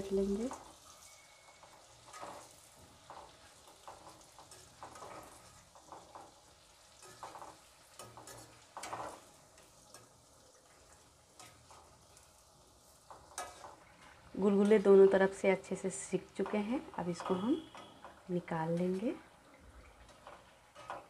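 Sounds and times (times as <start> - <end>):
fritters deep-frying in oil: 0.0 - 21.0
metal spoon scraping a wok: 13.1 - 13.8.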